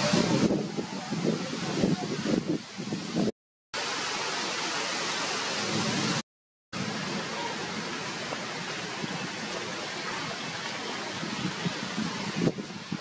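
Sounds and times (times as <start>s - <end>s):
steady rushing hiss: 6.8s - 13.0s.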